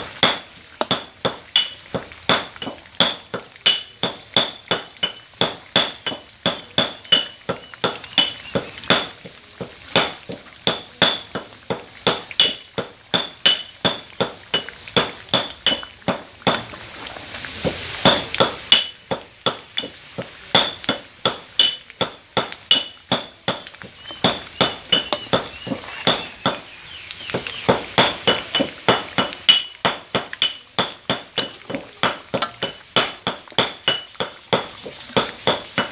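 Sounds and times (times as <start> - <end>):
frying oil hissing: 0.0 - 35.9
metal spatula clinking against wok: 28.0 - 35.9.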